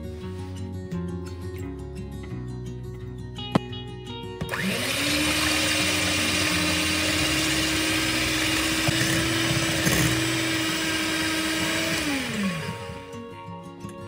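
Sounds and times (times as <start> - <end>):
electric hand mixer whirring: 4.5 - 13.3.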